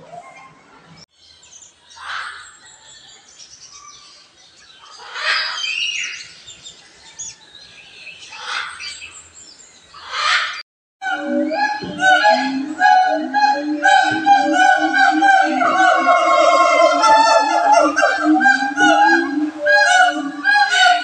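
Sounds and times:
macaw squawking: 11.1s - 21.0s.

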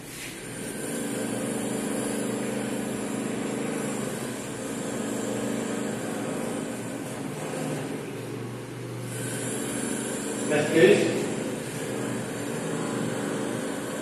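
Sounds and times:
duster rubbing whiteboard: 0.0s - 8.4s, 9.1s - 14.0s.

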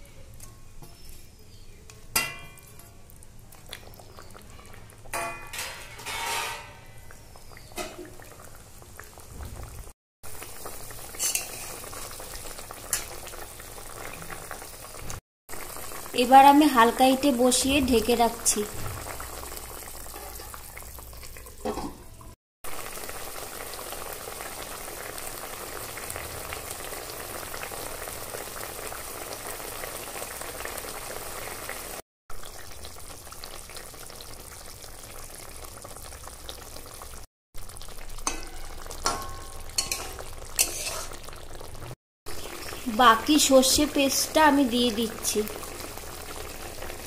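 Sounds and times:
curry bubbling and sizzling: 0.4s - 47.0s
metal spatula scraping pan: 5.2s - 7.0s, 11.2s - 11.8s, 38.3s - 41.2s.

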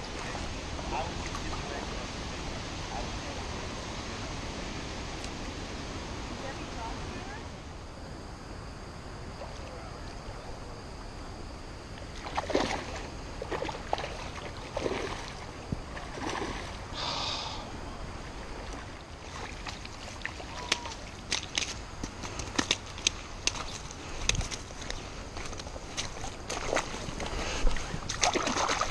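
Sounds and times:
water splashing and sloshing: 12.0s - 16.9s, 18.1s - 28.9s.

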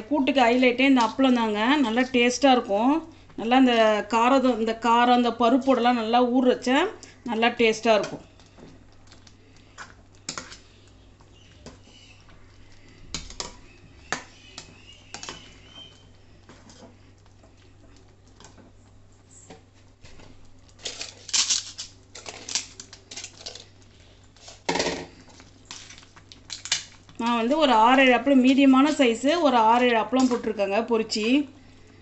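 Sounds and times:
crisp crackling of fried papads: 17.0s - 27.6s.

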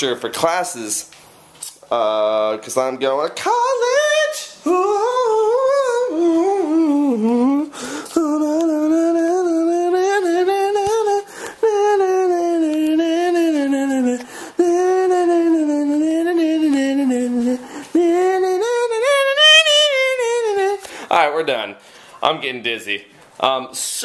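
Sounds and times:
person singing wordless held notes: 1.9s - 21.2s.

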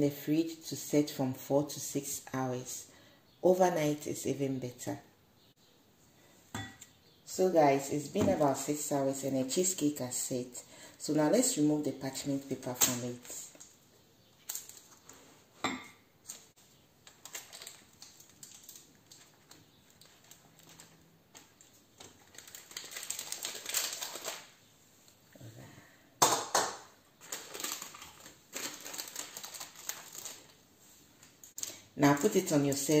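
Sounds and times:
parchment paper crinkling: 14.4s - 15.3s, 16.2s - 24.6s, 27.2s - 30.6s, 31.2s - 33.0s.

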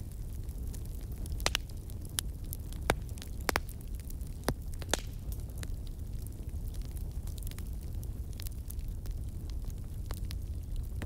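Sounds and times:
wood crackling and popping: 0.0s - 11.0s.

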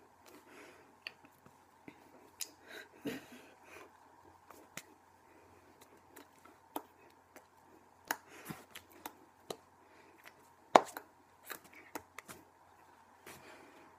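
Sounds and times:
hands tapping and slapping: 10.3s - 12.4s.

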